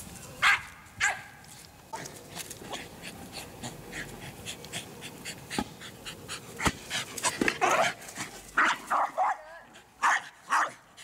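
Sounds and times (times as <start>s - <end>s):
dog panting quickly: 2.7s - 7.4s.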